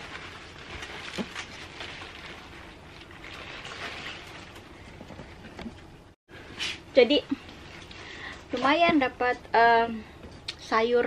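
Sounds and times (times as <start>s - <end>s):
cabbage leaves rustling: 0.0s - 4.8s
faint crackles: 0.0s - 5.8s.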